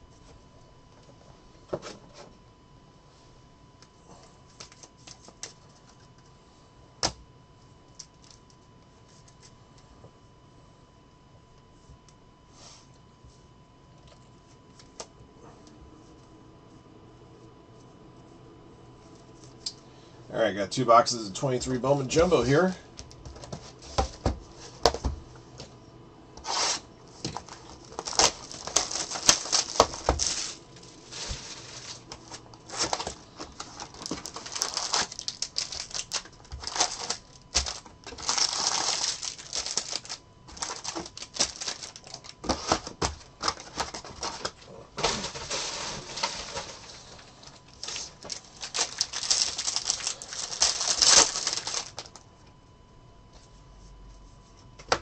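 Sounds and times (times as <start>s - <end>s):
foil packs crinkling and tearing: 26.4s - 52.2s.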